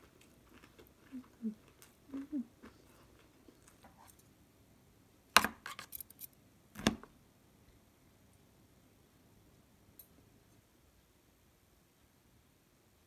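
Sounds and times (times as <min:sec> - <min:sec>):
soft eating sounds: 0:00.0 - 0:04.6.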